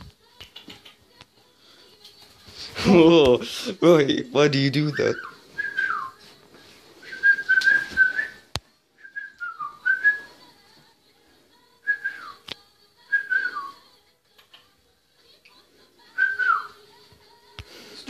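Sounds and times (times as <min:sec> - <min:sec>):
sharp clicks: 0:00.3 - 0:01.3
cockatiel whistling: 0:04.8 - 0:06.2, 0:16.2 - 0:16.8.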